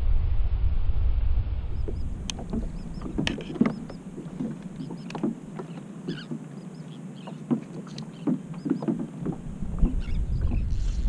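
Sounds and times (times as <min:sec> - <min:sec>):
waves lapping against plastic hull: 0:01.7 - 0:11.0
light knocks: 0:01.9 - 0:06.5, 0:07.2 - 0:10.6.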